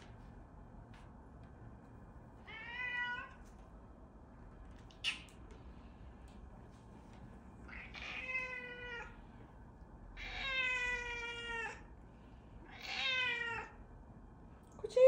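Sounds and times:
cat meowing: 2.5 - 3.4, 7.7 - 9.2, 10.2 - 11.8, 12.6 - 13.8.

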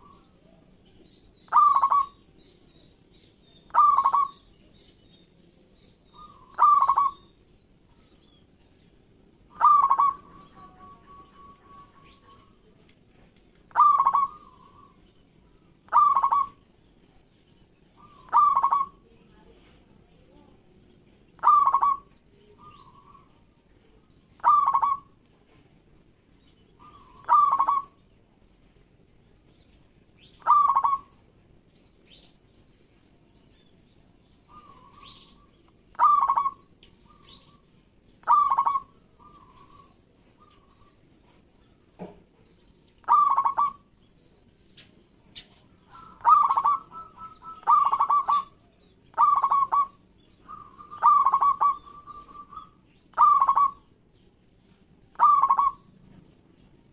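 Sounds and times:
dove cooing: 1.5 - 2.3, 3.7 - 4.5, 6.2 - 7.3, 9.5 - 12.4, 13.7 - 15.0, 15.9 - 16.6, 18.0 - 19.1, 21.4 - 23.4, 24.4 - 25.2, 26.8 - 28.0, 30.3 - 31.2, 34.5 - 37.6, 38.2 - 40.9, 43.0 - 43.9, 45.8 - 53.9, 55.1 - 55.9.

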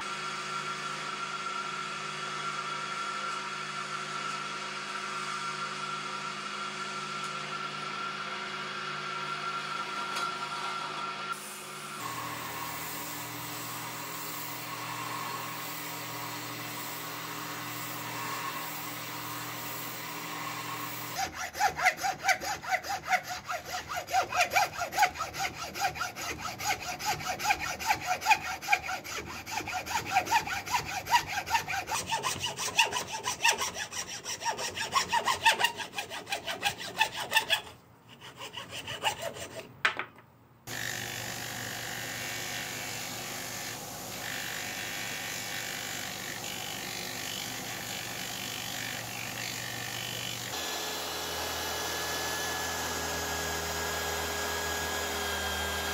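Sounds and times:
electric disc sander running: 0.8 - 21.2, 40.7 - 55.9
hacksaw cutting wood: 12.0 - 39.8, 40.7 - 55.9.

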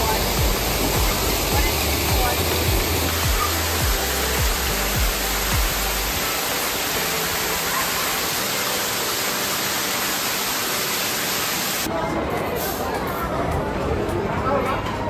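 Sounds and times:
music with thumping bass beat: 0.0 - 6.2.

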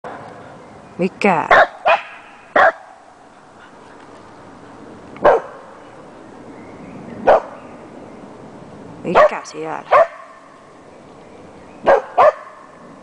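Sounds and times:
dog barks: 1.5 - 3.0, 5.2 - 5.6, 7.2 - 7.6, 9.1 - 10.4, 11.8 - 12.7.

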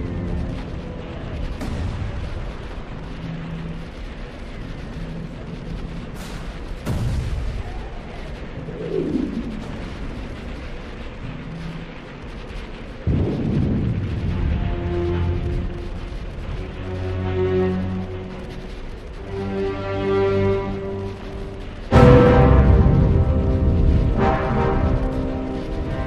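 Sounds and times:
loud explosion blast: 0.0 - 5.1, 5.7 - 16.9, 21.0 - 26.0
falling sweep: 0.0 - 17.1
explosions rumbling: 0.0 - 26.0.

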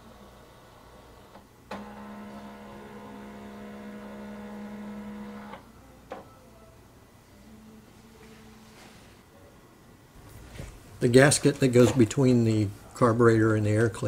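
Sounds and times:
printer motor hum with tones: 0.0 - 5.6.

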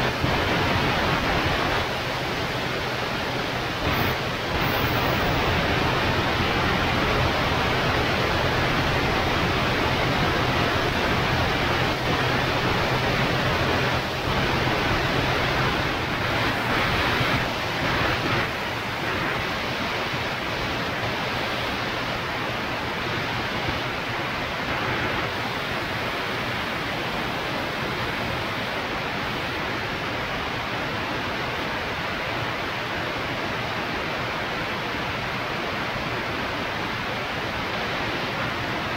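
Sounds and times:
aircraft engine hum: 0.0 - 22.6
airflow rush: 0.0 - 29.8.

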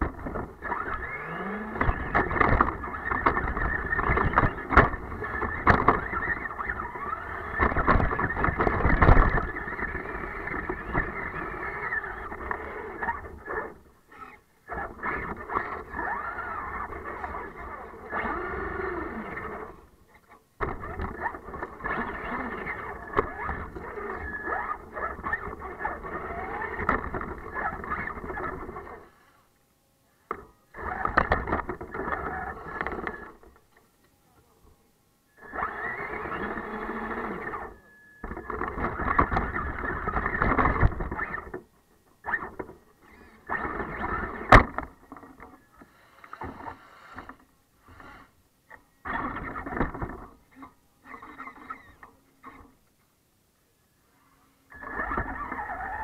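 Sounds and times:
tyres churning snow: 0.0 - 19.9, 54.8 - 56.0
rc truck motor whining: 0.0 - 29.6, 30.3 - 33.7, 35.3 - 52.9, 53.9 - 56.0.

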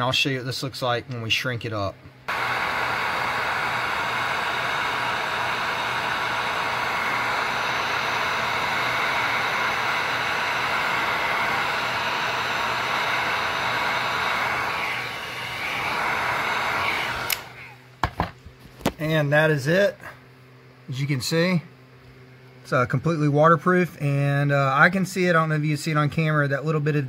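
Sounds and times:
heat gun blowing air: 2.3 - 17.8.

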